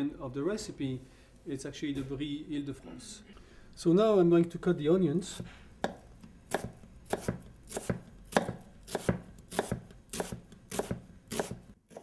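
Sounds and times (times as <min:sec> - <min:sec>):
knife chopping on cutting board: 0:05.4 - 0:12.0.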